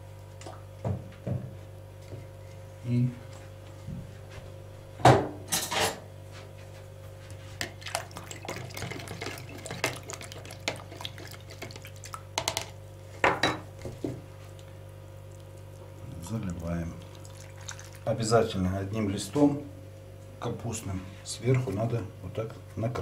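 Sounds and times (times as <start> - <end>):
steady low hum: 0.0 - 23.0
liquid sloshing in plastic jug: 7.4 - 12.3, 16.2 - 18.1.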